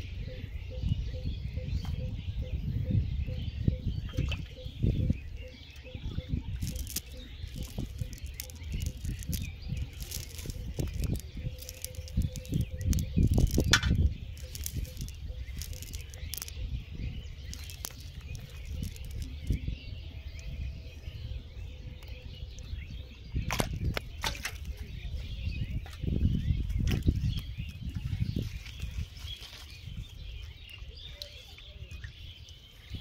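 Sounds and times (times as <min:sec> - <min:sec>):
faint bird chirps: 0:00.0 - 0:33.0
fishing net rustling and crackling: 0:05.8 - 0:19.8, 0:23.5 - 0:25.0, 0:25.8 - 0:30.8.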